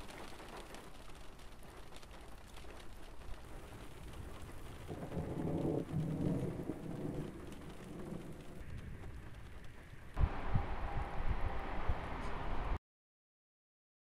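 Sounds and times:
distant thunder rumbling: 0:03.4 - 0:12.4.

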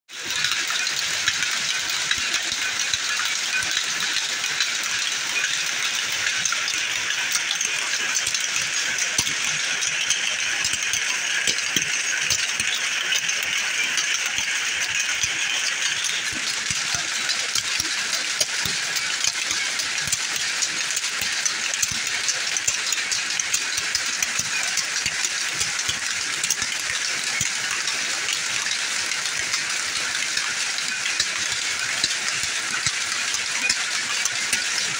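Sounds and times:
power looms clattering: 0:00.2 - 0:34.9.

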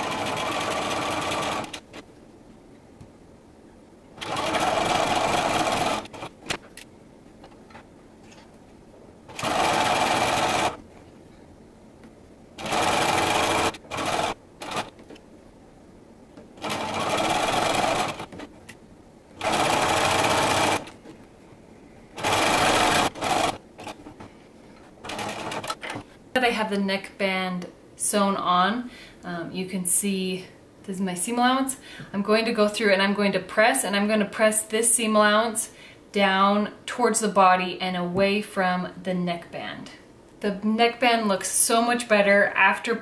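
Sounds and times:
sewing machine stitching: 0:00.0 - 0:02.0, 0:04.2 - 0:06.4, 0:09.3 - 0:10.8, 0:12.6 - 0:15.0, 0:16.6 - 0:18.5, 0:19.4 - 0:21.0, 0:22.2 - 0:24.0, 0:25.0 - 0:26.0.

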